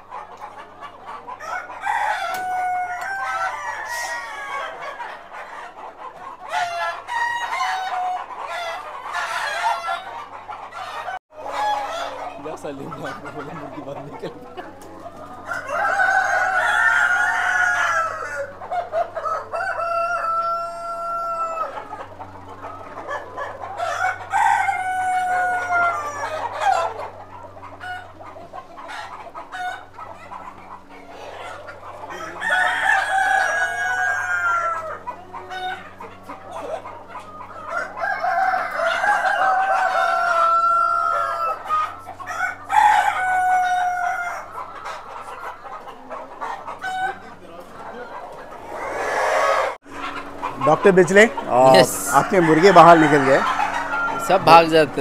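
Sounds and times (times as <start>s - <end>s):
roosters crowing: 0.0s - 55.0s
steady low hum: 49.6s - 55.0s.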